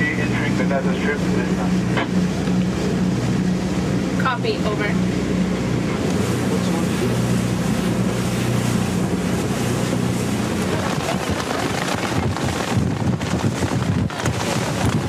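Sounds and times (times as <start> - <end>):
boat engine droning: 0.0 - 15.0
sea rushing: 0.0 - 15.0
waves breaking: 0.0 - 15.0
wind buffeting microphone: 0.0 - 15.0.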